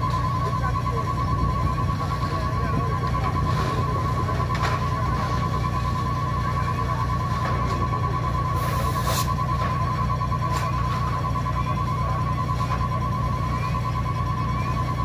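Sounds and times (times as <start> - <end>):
electronic alarm beeping rapidly: 0.0 - 15.0
brief hiss: 8.6 - 9.4.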